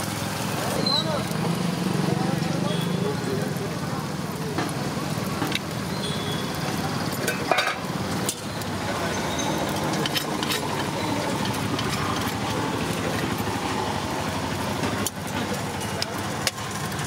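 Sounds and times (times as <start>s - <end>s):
engine hum: 0.0s - 17.0s.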